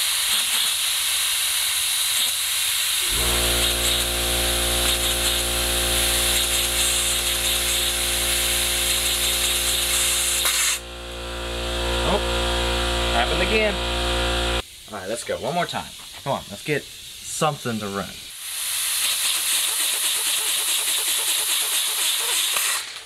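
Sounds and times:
compressed air hissing: 0:00.0 - 0:11.3, 0:14.6 - 0:23.0
air compressor motor humming: 0:03.0 - 0:14.6.

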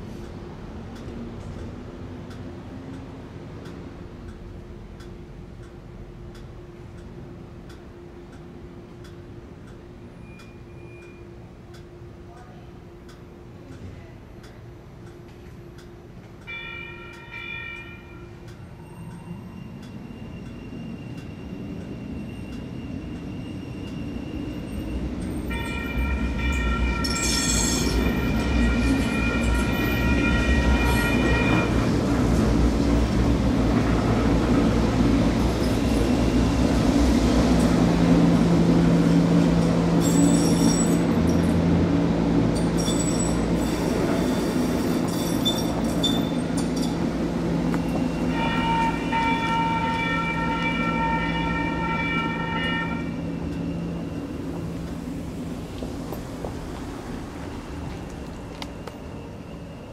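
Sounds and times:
train rumbling on rails: 0:00.0 - 0:59.9
wheels squealing: 0:39.9 - 0:41.6, 0:42.6 - 0:54.8.

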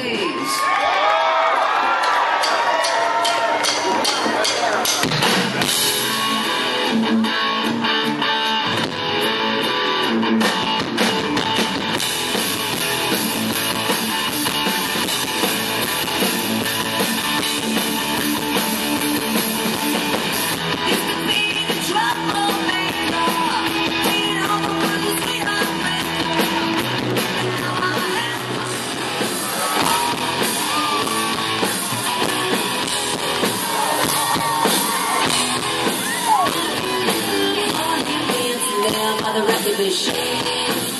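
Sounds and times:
drum kit: 0:02.0 - 0:40.9
electric guitars: 0:03.2 - 0:40.9.

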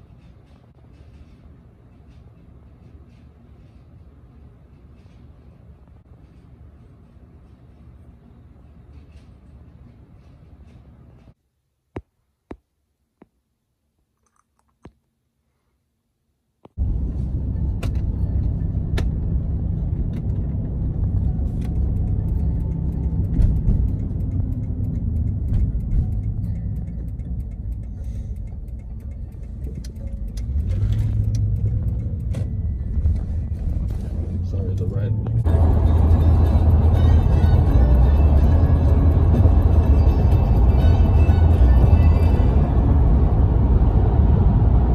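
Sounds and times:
road noise inside moving car: 0:16.7 - 0:44.9.

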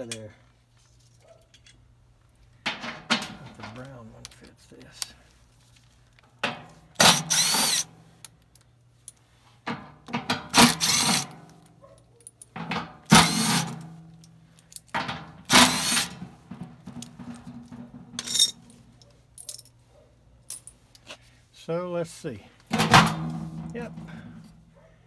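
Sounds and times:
cordless power driver spinning: 0:07.0 - 0:07.8
metallic clatter: 0:12.3 - 0:19.7.

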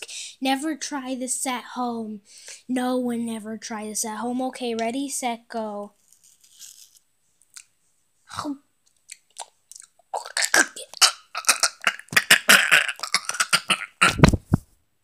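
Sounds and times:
short throat sounds: 0:10.2 - 0:14.6
girl coughing and gagging: 0:10.3 - 0:14.4.

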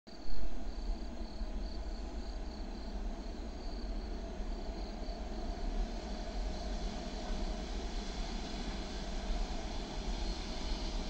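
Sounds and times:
crickets chirping: 0:00.7 - 0:05.6.

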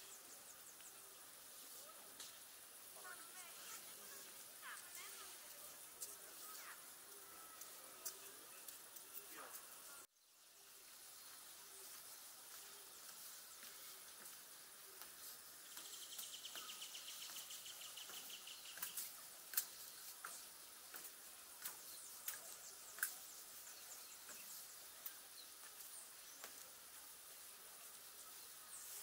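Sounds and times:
soft outdoor hiss: 0:00.0 - 0:29.0
bird chirps: 0:15.2 - 0:26.6.

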